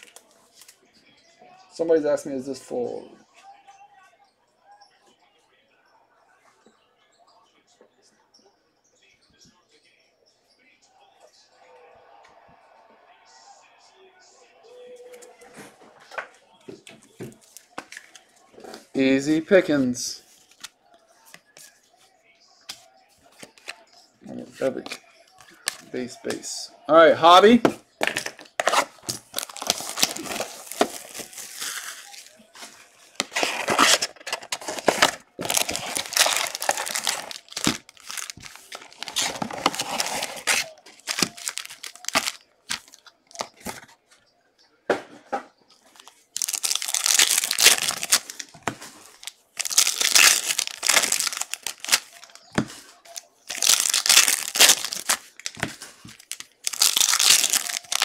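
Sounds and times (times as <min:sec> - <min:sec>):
card pack wrappers tearing and crinkling: 0:28.1 - 0:32.4, 0:33.2 - 0:43.5, 0:46.0 - 0:58.0.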